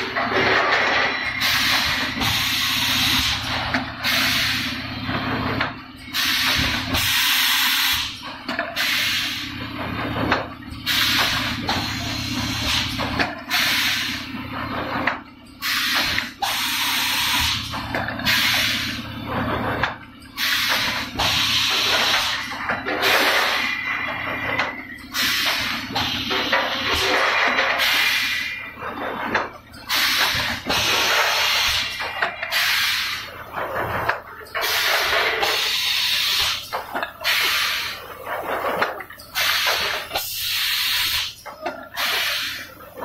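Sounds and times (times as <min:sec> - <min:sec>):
compressed air hisses: 0:40.2 - 0:41.4, 0:42.0 - 0:42.7.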